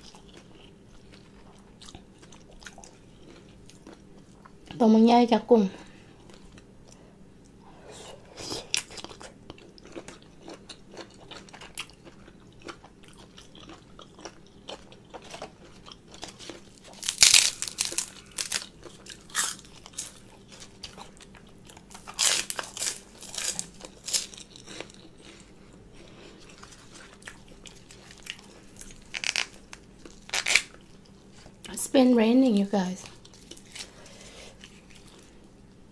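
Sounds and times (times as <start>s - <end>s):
chewing with soft clicks: 8.7s - 16.7s
pork rinds crunching: 8.7s - 25.5s, 26.5s - 31.0s.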